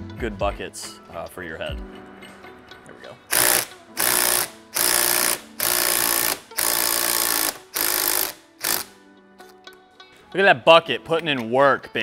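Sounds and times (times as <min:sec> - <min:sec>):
impact wrench hammering: 0:03.3 - 0:08.9.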